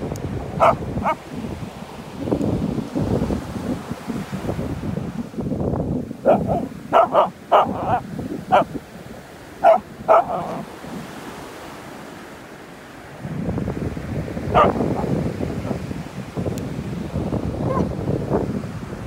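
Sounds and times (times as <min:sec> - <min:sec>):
dog barking in sharp yaps: 0:00.6 - 0:01.2, 0:06.3 - 0:08.7, 0:09.6 - 0:10.7, 0:14.6 - 0:15.1.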